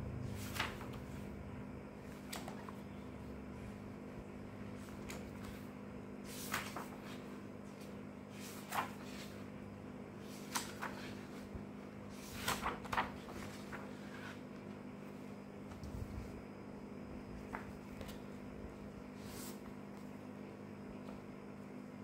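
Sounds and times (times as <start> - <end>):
pages turning: 0.3 - 1.2, 2.0 - 2.9, 4.7 - 9.5, 10.2 - 16.4, 17.4 - 18.4.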